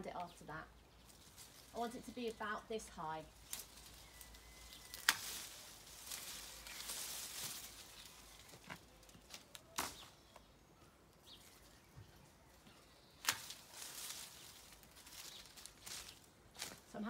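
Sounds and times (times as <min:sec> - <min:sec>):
rustling leaves and twigs: 0:00.0 - 0:17.0
loppers snapping branches: 0:03.4 - 0:10.5, 0:13.2 - 0:16.8.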